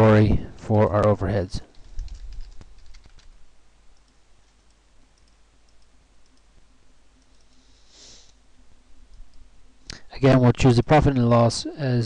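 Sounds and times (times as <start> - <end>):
low steady hum: 0.0 - 12.0
computer mouse clicks: 1.7 - 6.5, 7.2 - 7.6
short soft hiss: 7.4 - 8.4.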